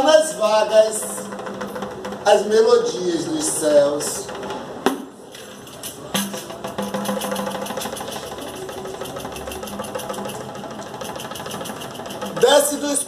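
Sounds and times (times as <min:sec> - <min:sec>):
clicking percussion beat: 0:00.9 - 0:02.7, 0:05.6 - 0:13.0.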